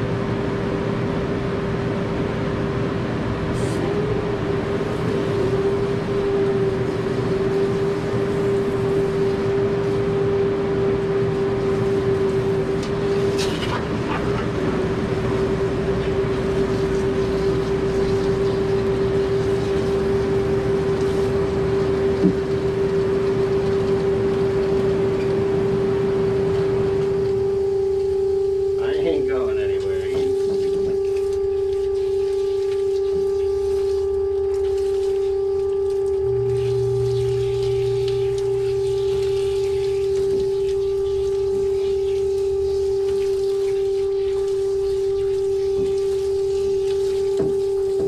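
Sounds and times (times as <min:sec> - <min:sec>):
steady machine hum: 0:00.0 - 0:48.0.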